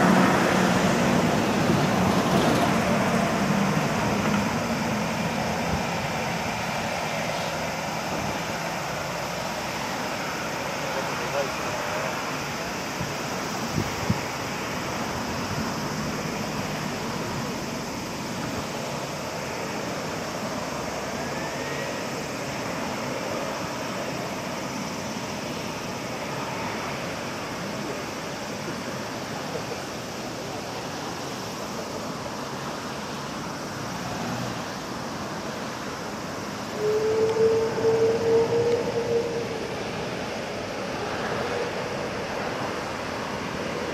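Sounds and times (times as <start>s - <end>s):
jet engines rumbling at low thrust: 0.0s - 43.9s.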